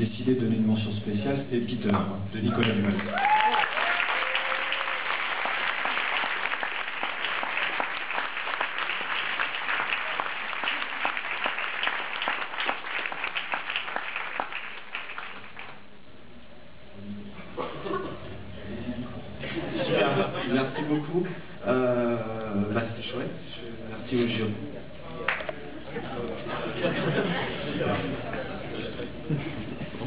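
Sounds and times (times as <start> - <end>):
crowd applauding: 2.6 - 15.8.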